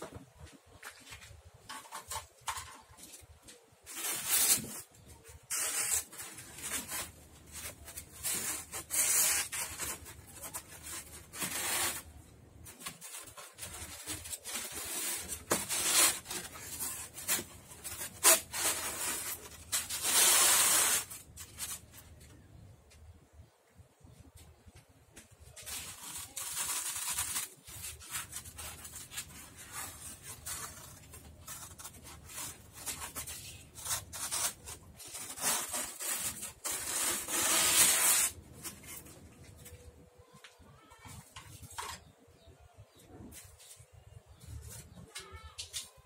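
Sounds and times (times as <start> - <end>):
styrofoam sheets scraping: 1.1 - 22.2, 25.4 - 39.9.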